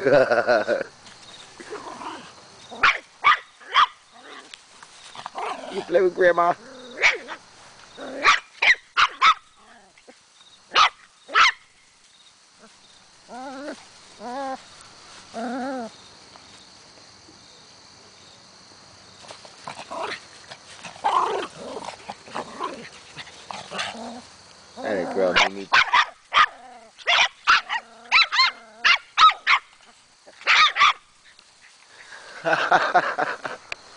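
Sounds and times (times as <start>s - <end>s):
small dogs yapping: 1.6s - 6.0s, 6.6s - 11.7s, 12.6s - 16.0s, 19.2s - 31.8s
dog high pitched cries: 25.3s - 29.7s.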